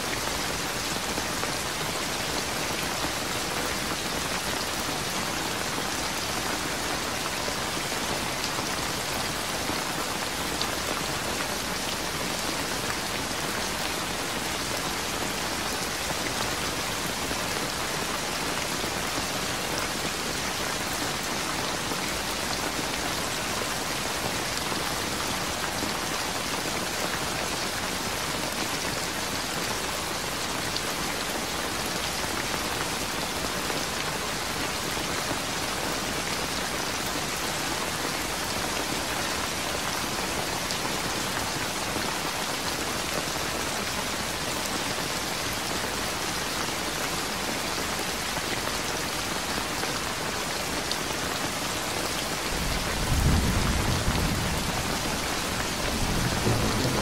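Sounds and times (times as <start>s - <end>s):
heavy rain hissing: 51.8s - 57.0s.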